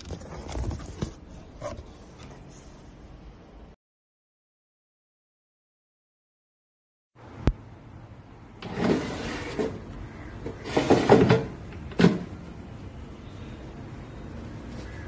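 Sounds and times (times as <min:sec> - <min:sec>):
drawer scraping in housing: 0:08.6 - 0:12.3.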